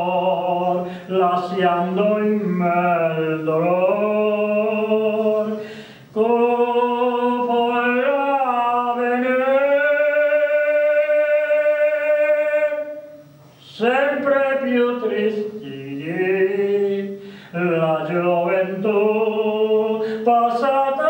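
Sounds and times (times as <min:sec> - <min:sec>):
man singing unaccompanied: 0:00.0 - 0:21.0
man taking a breath: 0:05.6 - 0:06.1, 0:17.2 - 0:17.6.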